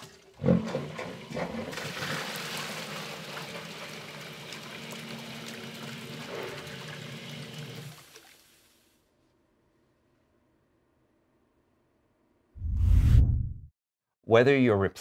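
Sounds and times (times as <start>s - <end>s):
water splashing into bucket: 0.0s - 8.5s
sump pump motor hum: 2.7s - 8.0s.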